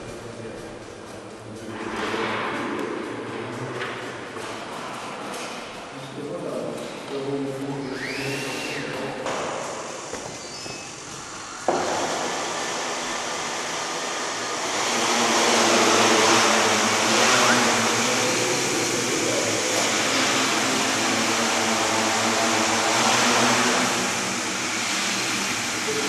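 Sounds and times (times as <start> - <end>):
drone propellers whirring: 7.6 - 26.0.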